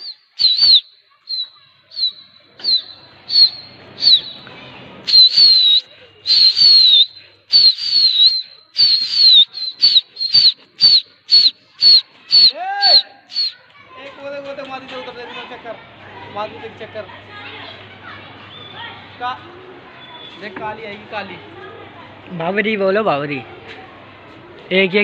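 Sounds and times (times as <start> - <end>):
sharp high whistles: 0.0 - 4.4, 5.1 - 13.6.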